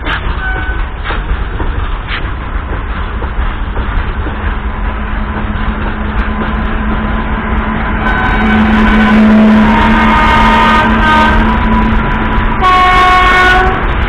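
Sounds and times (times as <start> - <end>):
freight train rumbling past: 0.0 - 14.0
train horn blasts: 0.1 - 0.9, 7.8 - 14.0.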